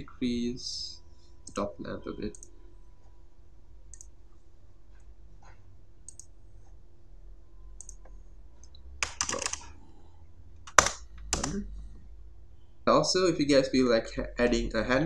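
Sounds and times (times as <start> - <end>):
faint steady hum: 0.0 - 15.0
computer mouse clicks: 2.3 - 2.5, 3.9 - 4.1, 6.1 - 6.3, 7.8 - 9.6, 10.7 - 11.6
keyboard keystrokes: 9.0 - 9.6, 10.7 - 11.6.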